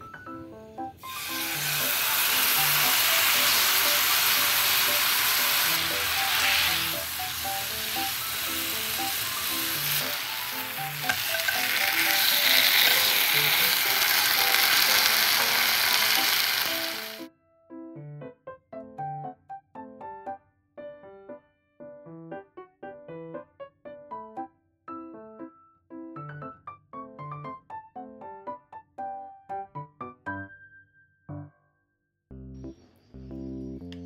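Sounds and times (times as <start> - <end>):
chicken sizzling in oil: 1.0 - 17.3.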